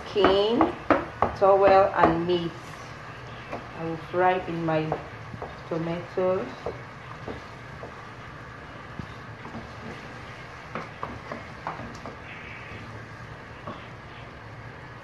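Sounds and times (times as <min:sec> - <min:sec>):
steady low hum: 0:00.0 - 0:15.0
wooden spatula stirring food: 0:00.0 - 0:15.0
spatula knocking against pot: 0:00.2 - 0:02.3, 0:06.5 - 0:08.1, 0:10.6 - 0:12.8.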